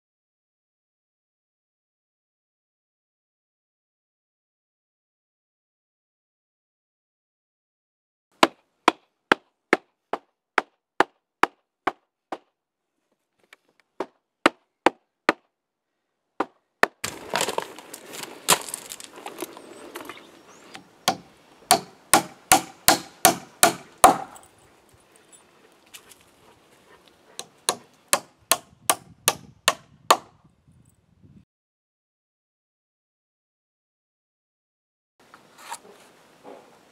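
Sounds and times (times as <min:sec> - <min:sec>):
hammer driving nails into wood: 0:20.7 - 0:24.5, 0:27.4 - 0:30.3.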